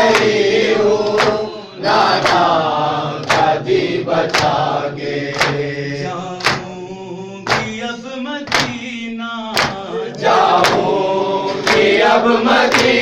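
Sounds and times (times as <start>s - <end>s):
men chanting: 0.0s - 13.0s
chest beating slaps: 1.0s - 1.6s, 2.2s - 2.6s, 3.2s - 3.6s, 4.3s - 4.7s, 5.3s - 5.7s, 6.4s - 6.8s, 7.5s - 7.8s, 8.5s - 8.9s, 9.6s - 9.9s, 10.5s - 12.0s, 12.7s - 13.0s.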